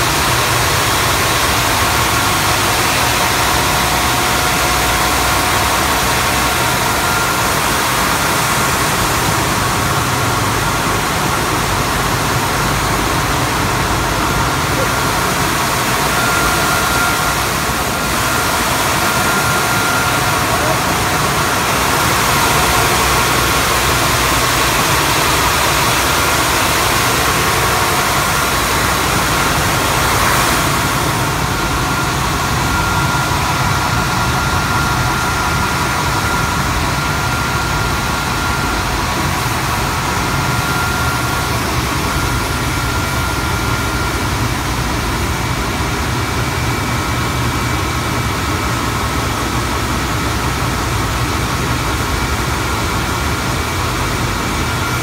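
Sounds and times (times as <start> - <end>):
faint high whine: 0.0 - 55.0.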